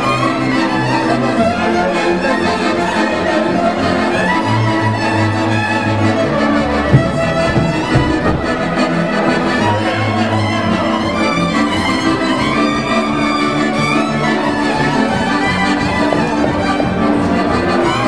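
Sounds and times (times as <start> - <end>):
accordion: 0.0 - 18.0
fiddles bowing melody: 0.0 - 18.0
plucked double bass: 0.0 - 18.0
sharp knock: 6.9 - 8.7.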